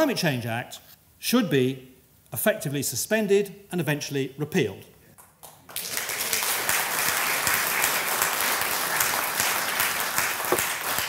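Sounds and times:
audience applause: 0:05.6 - 0:11.0.

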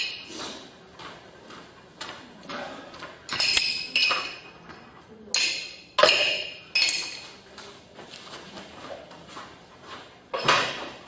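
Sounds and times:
glass jars clinking: 0:03.3 - 0:04.5, 0:05.4 - 0:07.3.

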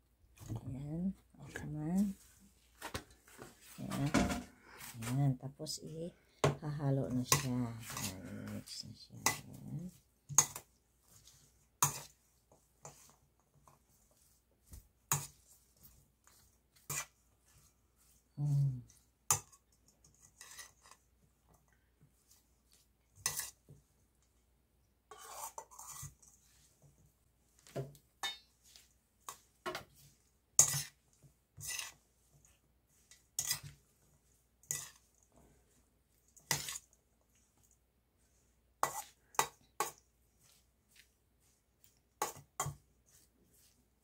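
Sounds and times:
steel bowl clinking and scraping: 0:28.2 - 0:28.6, 0:31.6 - 0:32.0, 0:34.6 - 0:35.3.

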